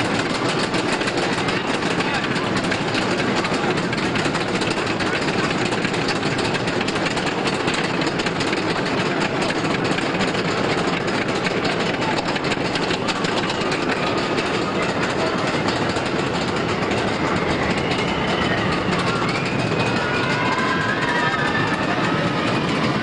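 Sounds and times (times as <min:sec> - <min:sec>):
roller coaster rumbling on track: 0:00.0 - 0:23.0
high wailing glides: 0:13.8 - 0:23.0.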